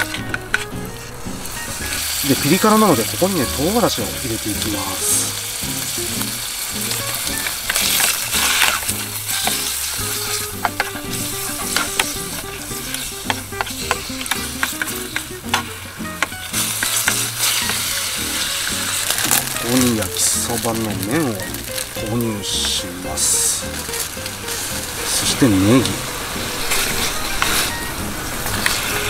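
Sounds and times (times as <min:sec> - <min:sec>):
background music: 0:00.0 - 0:29.0
pork sizzling in oil: 0:00.0 - 0:29.0
chopsticks clicking on metal tin: 0:07.4 - 0:18.0.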